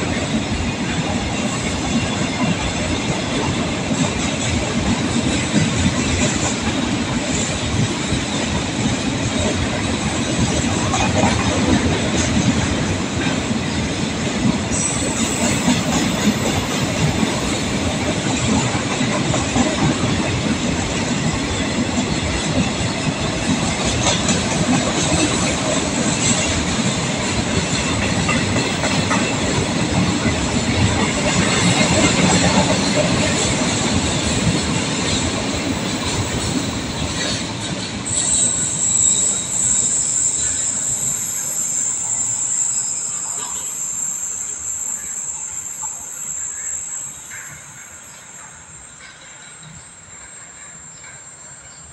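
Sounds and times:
freight train rail rumble: 0.0 - 51.9.

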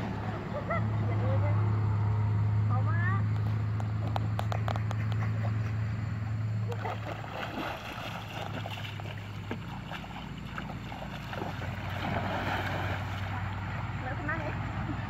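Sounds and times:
steady low hum: 0.0 - 15.0
person wading through water: 6.6 - 13.9
big splash: 6.7 - 13.7.

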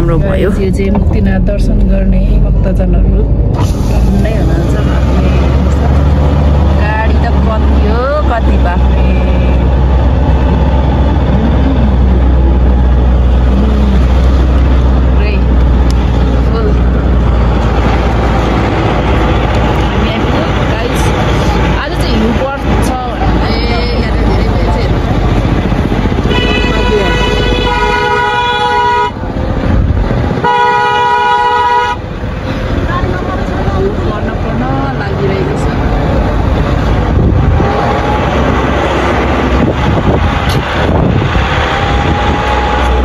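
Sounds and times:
wind buffeting microphone: 0.0 - 28.6, 29.2 - 30.5, 32.2 - 43.0
low engine rumble: 0.0 - 43.0
vehicle horns honking: 26.2 - 29.2, 30.4 - 32.2.

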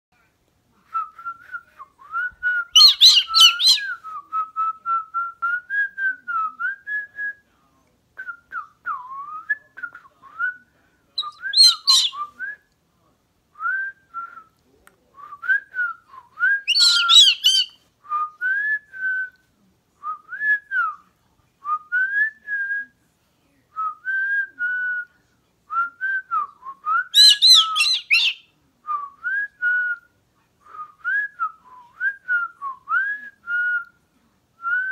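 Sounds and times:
cockatoo harsh calls: 2.8 - 3.9, 11.3 - 12.1, 16.7 - 17.7, 27.2 - 28.4
person whistling a tune: 30.7 - 33.9.

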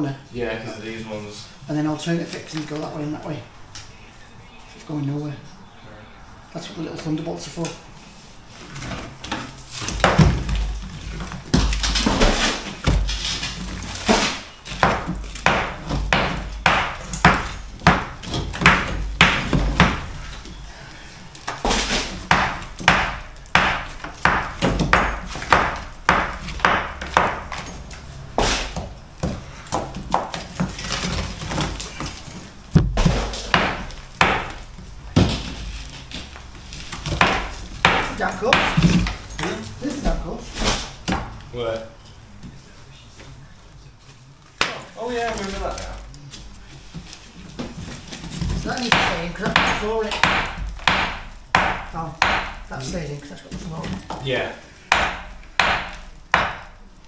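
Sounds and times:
hand tools striking brickwork: 9.8 - 20.3, 21.5 - 35.6, 36.9 - 41.4, 48.2 - 52.7, 54.9 - 56.8.

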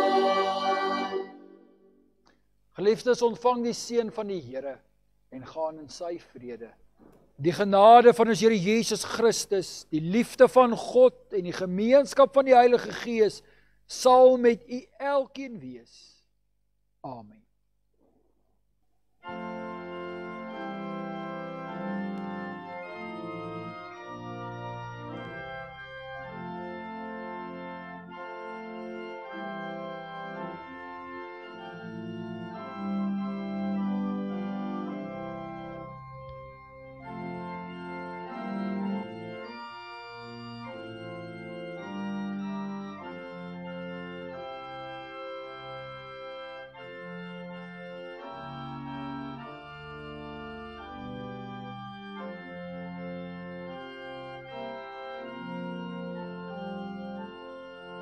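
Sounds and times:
church organ chords: 0.0 - 6.4, 19.0 - 58.0.

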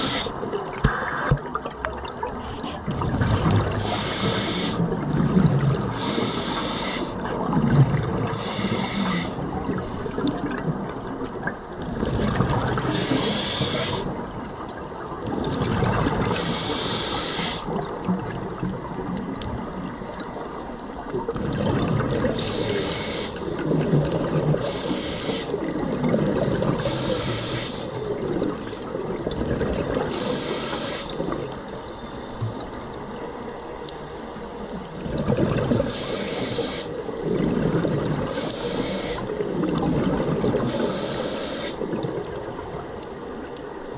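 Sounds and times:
diver inhaling through regulator: 0.0 - 1.4, 3.7 - 4.8, 5.9 - 7.2, 8.3 - 10.4, 12.8 - 14.2, 16.3 - 17.8, 22.3 - 23.8, 24.6 - 25.6, 26.6 - 28.2, 30.1 - 32.7, 35.8 - 37.1, 38.2 - 41.9
bubbling exhaled air: 21.1 - 31.6, 35.0 - 42.4.

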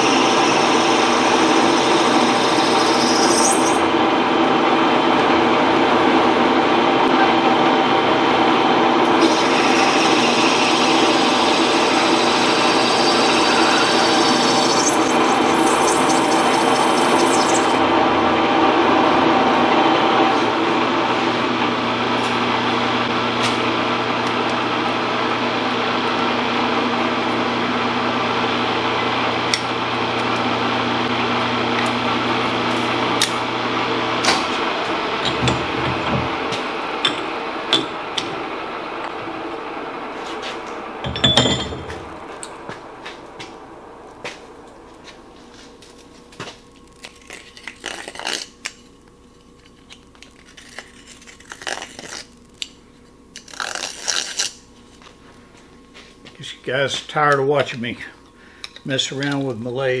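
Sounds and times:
lathe gear whine and motor hum: 0.0 - 46.8.

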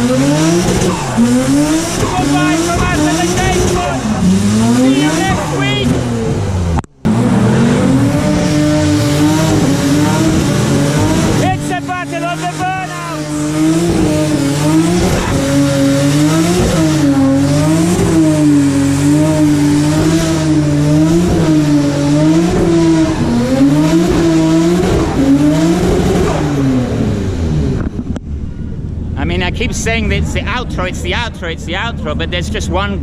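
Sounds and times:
tyres squealing: 0.0 - 6.2
car engine revving high: 0.0 - 33.0.

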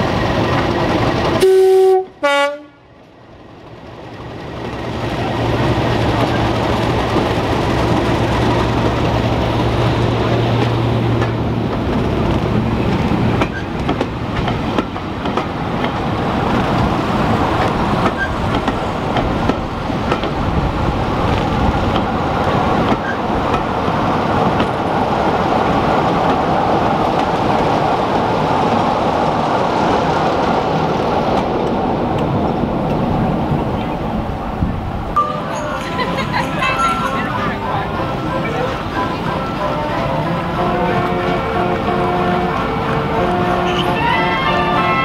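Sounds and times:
diesel locomotive engine: 0.0 - 45.0
train coaches rumbling: 0.0 - 45.0
wheels clicking over rail joints: 3.8 - 27.8.

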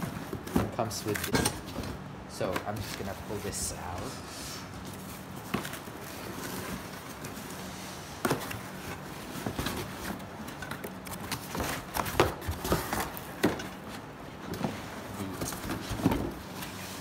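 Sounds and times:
cardboard knocks and rustles: 11.2 - 14.8.

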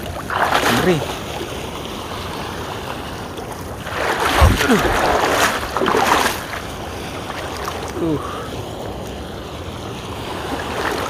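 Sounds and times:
surf washing around person wading: 0.0 - 11.0
low thump: 4.3 - 5.0.

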